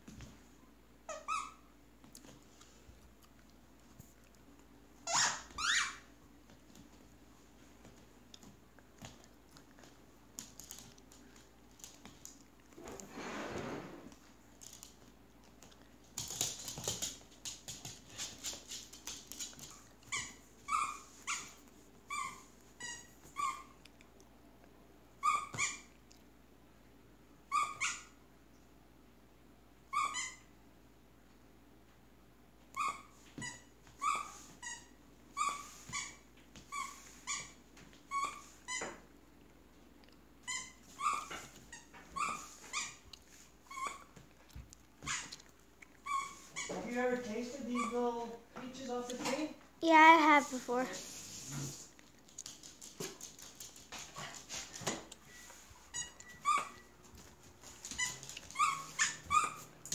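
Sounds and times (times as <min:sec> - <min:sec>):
squeaky plush toy: 0:01.1 - 0:01.7, 0:05.0 - 0:06.0, 0:20.1 - 0:23.7, 0:25.2 - 0:25.9, 0:27.5 - 0:28.2, 0:29.9 - 0:30.5, 0:32.8 - 0:39.0, 0:40.4 - 0:43.0, 0:43.7 - 0:44.1, 0:45.0 - 0:45.3, 0:46.0 - 0:46.8, 0:47.7 - 0:48.0, 0:55.9 - 0:56.9, 0:57.8 - 0:59.7.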